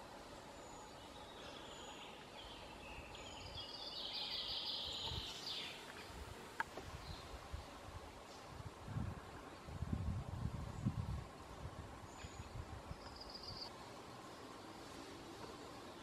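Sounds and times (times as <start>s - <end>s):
high birdsong: 0.0s - 7.4s, 10.6s - 15.0s
steady hiss: 0.0s - 16.0s.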